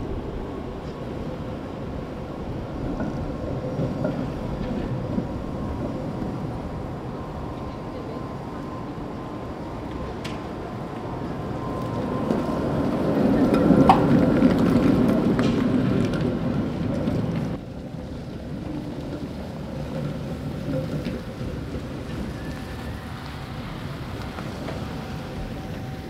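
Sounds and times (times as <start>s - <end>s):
street traffic: 0.0s - 26.0s
tram rumbling past: 0.0s - 26.0s
wheel squeal: 18.5s - 26.0s.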